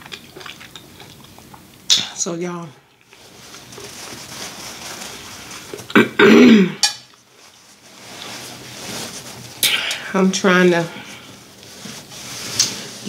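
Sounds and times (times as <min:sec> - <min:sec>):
hands handling paper napkin: 0:03.2 - 0:05.9, 0:07.2 - 0:09.6, 0:11.0 - 0:13.0.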